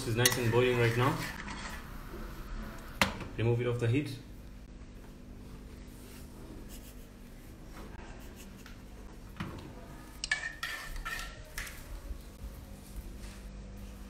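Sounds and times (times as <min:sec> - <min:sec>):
saucepan clinking and scraping on grate: 0:00.0 - 0:01.8, 0:10.2 - 0:11.8.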